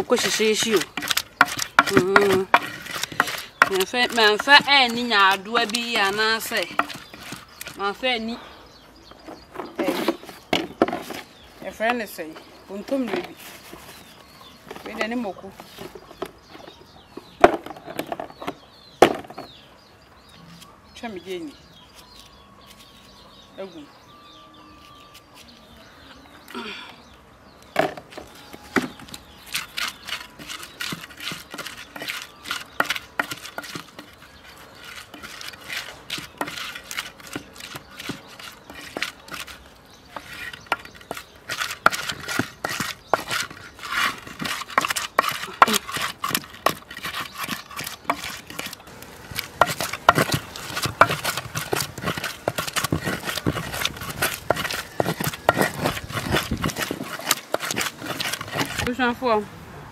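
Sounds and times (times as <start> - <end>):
pestle scraping in a bowl: 0.0 - 8.0, 9.3 - 11.9, 27.8 - 59.1.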